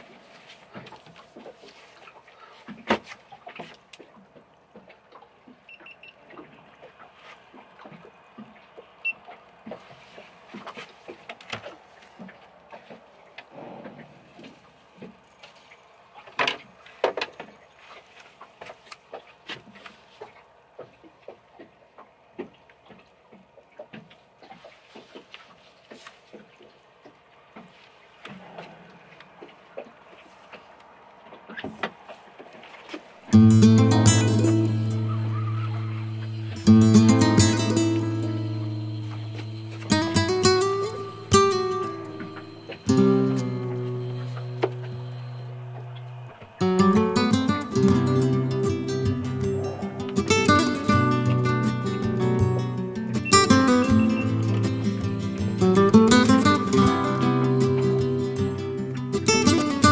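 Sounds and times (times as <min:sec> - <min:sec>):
water washing against hull: 0:00.0 - 0:58.2
clicks and knocks on boat: 0:00.7 - 0:33.1.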